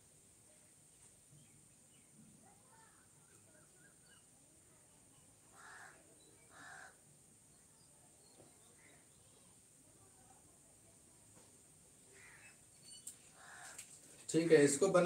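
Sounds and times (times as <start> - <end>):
faint background hiss: 0.0 - 15.0
short bird calls: 12.1 - 13.9.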